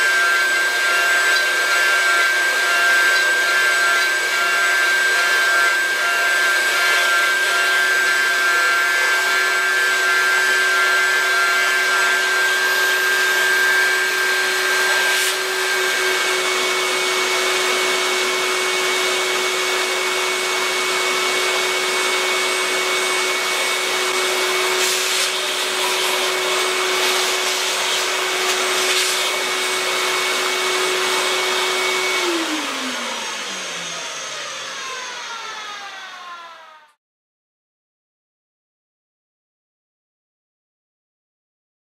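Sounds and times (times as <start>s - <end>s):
router spindle whine: 0.0s - 37.0s
dust vacuum hiss: 23.8s - 32.0s.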